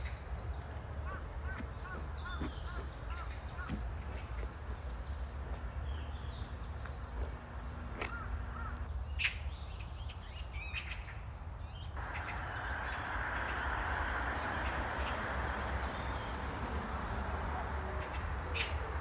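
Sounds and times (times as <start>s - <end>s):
birds chirping: 0.0s - 19.0s
steady low rumble: 12.0s - 19.0s
steady rushing hiss: 12.0s - 19.0s.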